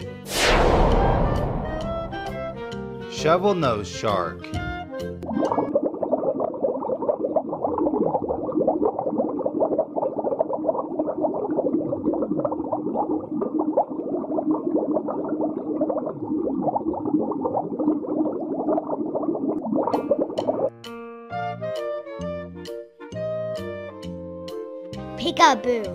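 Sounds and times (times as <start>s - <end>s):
underwater bubbling and gurgling: 5.2s - 20.7s.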